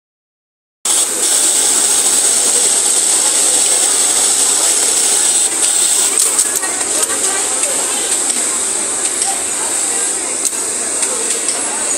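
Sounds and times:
high-pitched hiss: 0.9s - 6.9s
snap-button machine running: 0.9s - 9.3s.

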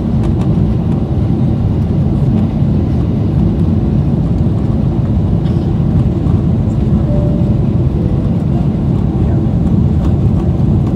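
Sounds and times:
jet engine rumble in cabin: 0.0s - 10.9s.

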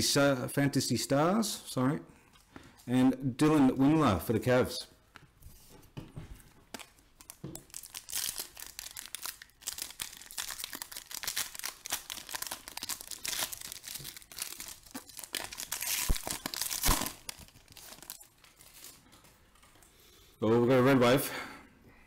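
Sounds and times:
foil wrapper tearing and crinkling: 6.7s - 19.0s.

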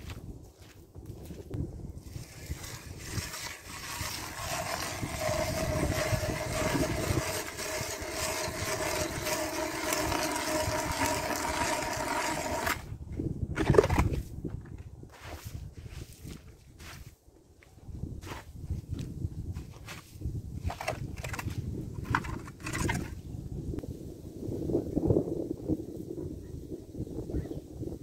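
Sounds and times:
ice auger motor grinding: 2.0s - 12.9s, 20.7s - 23.1s
loud scrape: 2.0s - 12.9s, 20.6s - 23.2s.

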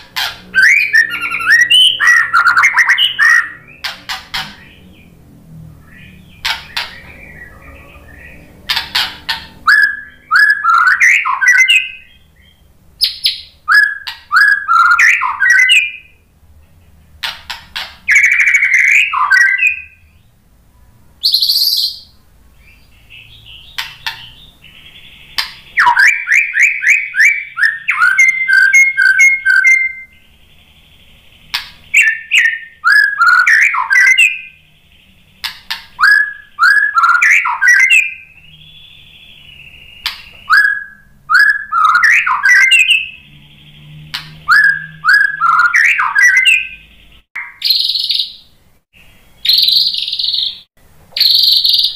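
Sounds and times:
bird singing: 0.0s - 20.4s, 21.0s - 51.9s
sharp bird clicks: 1.4s - 4.8s, 6.3s - 7.3s, 8.7s - 9.8s, 13.0s - 15.7s, 17.2s - 19.5s, 23.6s - 24.5s, 25.3s - 26.1s, 31.4s - 34.0s, 35.4s - 38.6s, 39.6s - 40.7s, 44.1s - 44.6s, 49.5s - 50.6s, 51.2s - 51.9s.

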